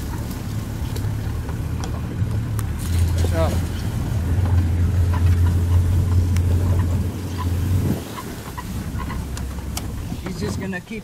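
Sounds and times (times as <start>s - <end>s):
vehicle engine droning: 0.0s - 11.0s.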